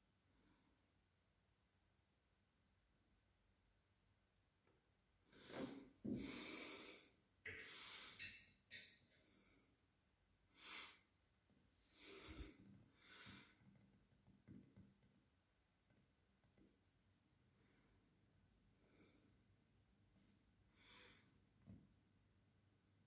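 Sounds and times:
person breathing: 5.3s - 8.4s, 9.2s - 9.8s, 10.5s - 11.1s, 11.8s - 13.7s, 18.8s - 19.5s, 20.7s - 21.4s.

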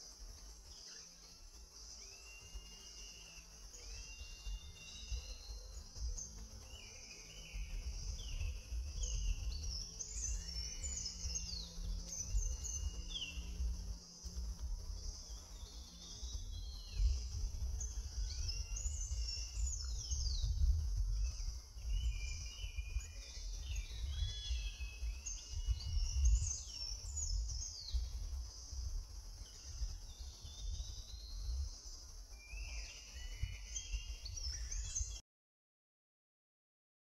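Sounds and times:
high insect hum: 0.0s - 35.2s
birds chirping and whistling: 0.4s - 35.2s
low rumble: 3.6s - 32.3s.

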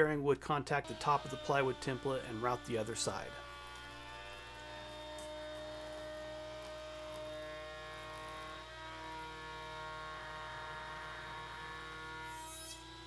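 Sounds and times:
router whining: 0.8s - 13.0s.

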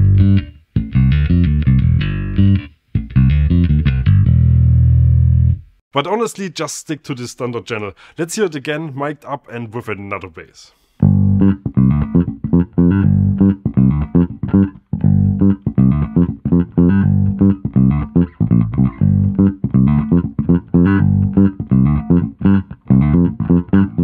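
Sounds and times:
bass guitar plucked notes: 0.0s - 5.8s, 11.0s - 24.0s.

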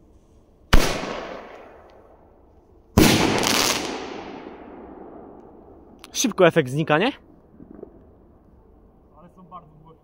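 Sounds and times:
firework launch bang: 3.0s - 5.3s.

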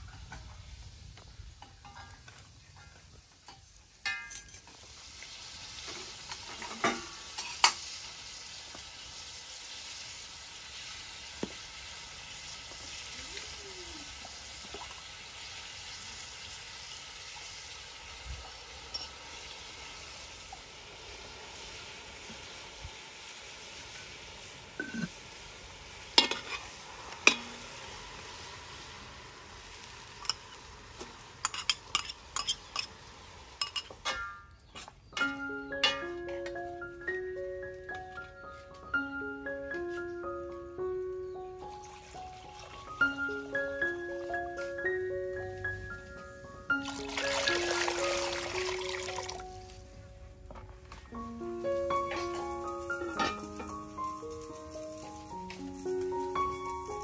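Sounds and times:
meat sizzling in a pot: 0.0s - 37.5s, 41.2s - 49.8s, 51.2s - 57.0s
metal clinks against pot: 1.6s - 2.4s, 3.4s - 4.8s, 18.9s - 19.2s, 26.2s - 27.7s, 30.2s - 30.5s, 31.4s - 33.0s, 33.6s - 36.5s, 52.1s - 53.7s.

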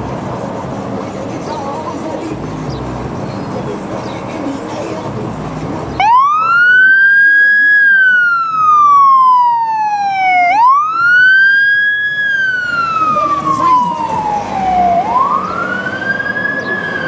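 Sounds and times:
fire engine siren wailing: 6.0s - 17.0s.

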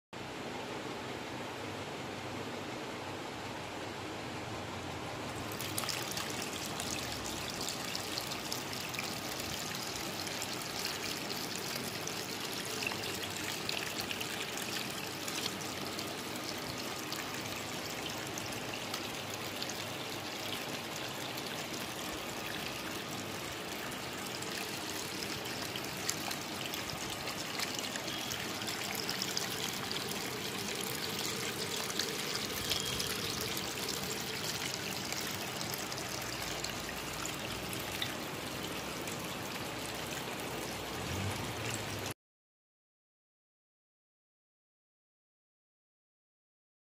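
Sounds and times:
water trickling and pouring: 5.3s - 42.2s.

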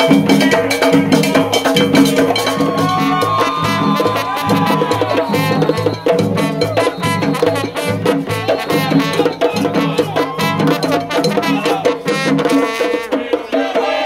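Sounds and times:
hand frame drums pounding: 0.0s - 14.0s
trombone playing: 0.0s - 14.0s
people singing along: 0.4s - 5.8s, 11.3s - 12.3s, 13.0s - 14.0s.

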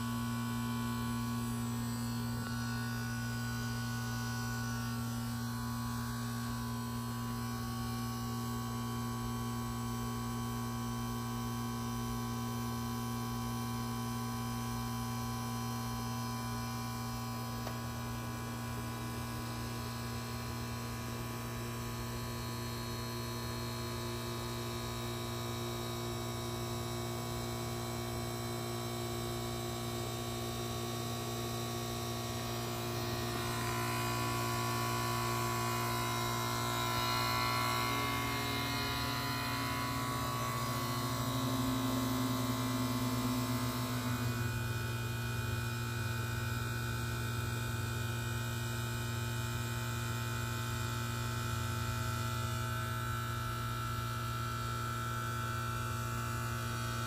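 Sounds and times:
compressor humming: 0.0s - 48.6s.

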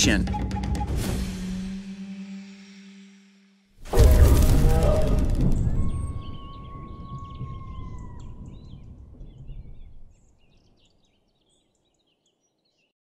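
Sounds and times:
sliding whistle-like tone: 3.9s - 8.0s
low rumble: 3.9s - 10.2s
bird chirps: 4.6s - 12.9s.

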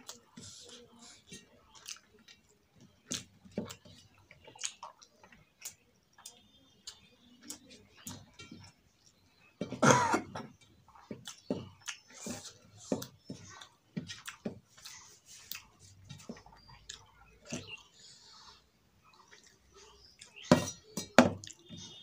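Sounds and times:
chewing and lip smacking: 0.0s - 9.4s, 10.9s - 18.1s, 19.0s - 20.5s, 21.4s - 22.0s
fingers mixing rice on steel plate: 10.4s - 22.0s.

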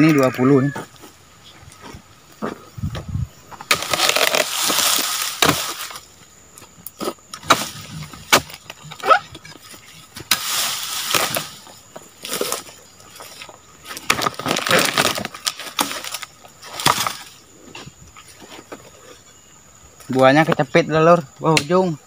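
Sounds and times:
sharp cracks and knocks: 3.6s - 6.0s, 6.8s - 9.6s, 10.2s - 12.7s, 13.9s - 17.4s
rustling in dead leaves: 3.7s - 6.2s, 9.7s - 17.5s.

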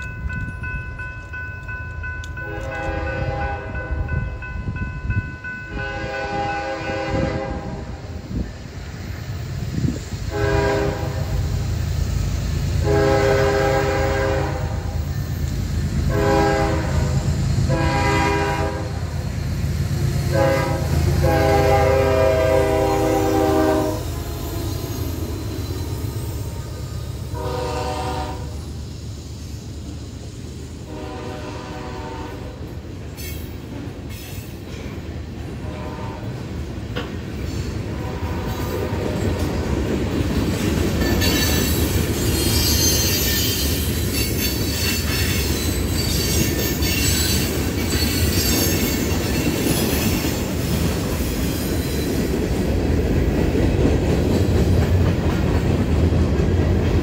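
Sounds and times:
diesel locomotives rumbling: 0.0s - 57.0s
locomotive air horn blasts: 2.4s - 4.1s, 5.6s - 8.0s, 10.3s - 11.5s, 12.8s - 15.0s, 16.1s - 19.1s, 20.3s - 25.3s, 26.4s - 28.7s, 30.8s - 32.6s, 35.6s - 36.5s, 37.9s - 39.4s.

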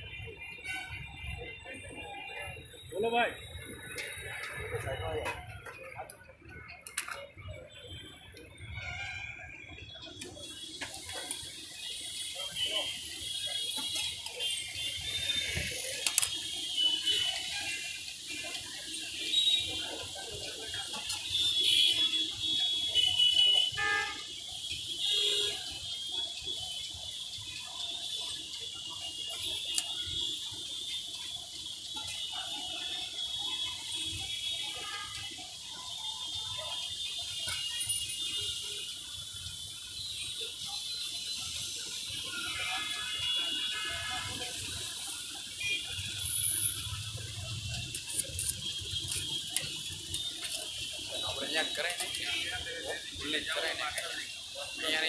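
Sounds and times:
steady street background noise: 0.0s - 55.0s
utensils clicking and tapping: 47.1s - 50.9s.

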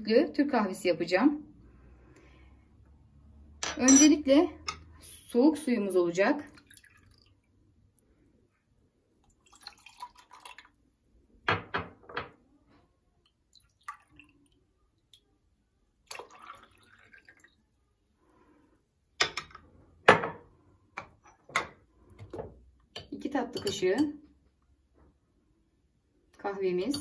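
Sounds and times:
porcelain and metal clinks: 3.6s - 4.8s, 26.8s - 27.0s
water trickling into cup: 6.4s - 7.6s, 9.2s - 10.8s, 13.2s - 15.2s, 16.0s - 17.8s.

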